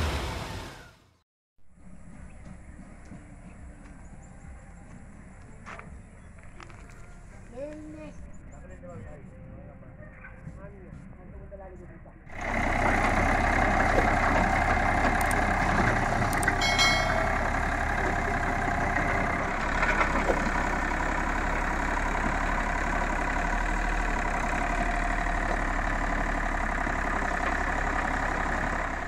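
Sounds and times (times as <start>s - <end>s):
excavator diesel engine running: 12.3s - 29.0s
sharp metallic clicks: 15.0s - 15.5s, 16.2s - 17.2s.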